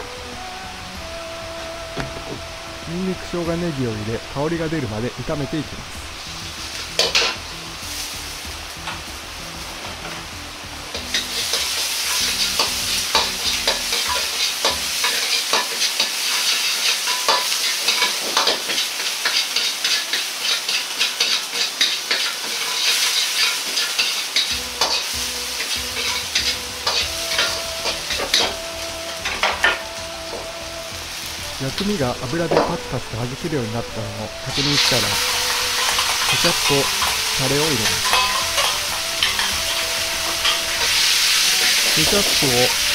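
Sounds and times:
aromatics sizzling in hot oil: 0.0 - 42.9
metal ladle scraping a wok: 6.2 - 9.0, 10.9 - 28.6, 34.5 - 42.9.

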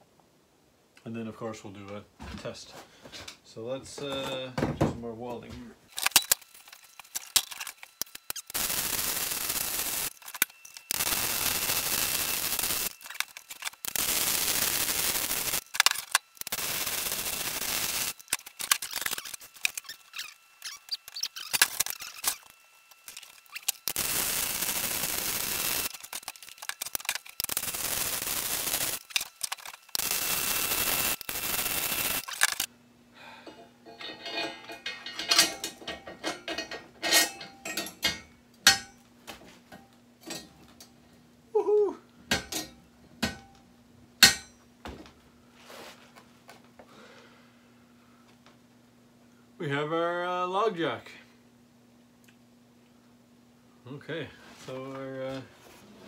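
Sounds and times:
arc welding crackling hiss: 5.9 - 32.7
metal clinks and knocks: 33.5 - 39.0.

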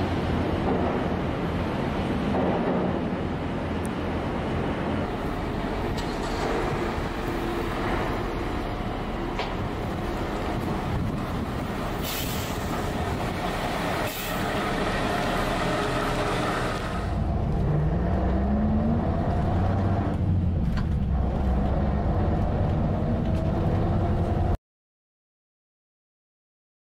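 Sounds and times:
bus engine running: 0.0 - 24.6
air brake hisses: 12.0 - 12.8.

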